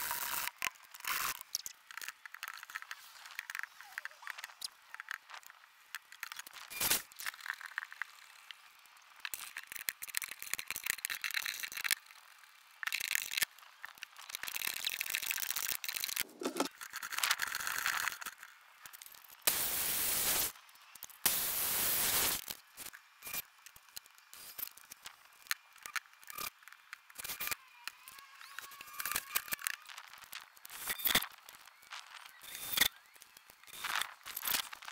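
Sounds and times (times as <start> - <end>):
wood scraping and knocking on plywood: 16.2 - 16.7.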